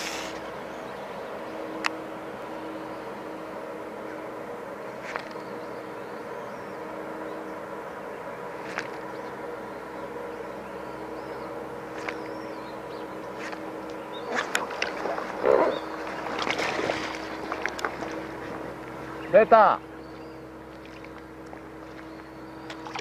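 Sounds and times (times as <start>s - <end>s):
steady hum: 0.0s - 23.0s
water splashing: 14.2s - 18.6s, 20.7s - 22.1s, 22.7s - 23.0s.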